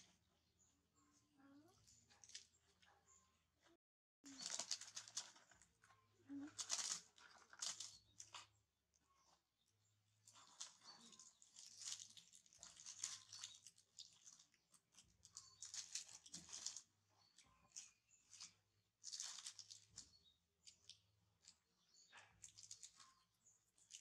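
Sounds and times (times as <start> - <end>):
plastic wrappers crinkling: 4.3 - 8.5, 10.2 - 24.0.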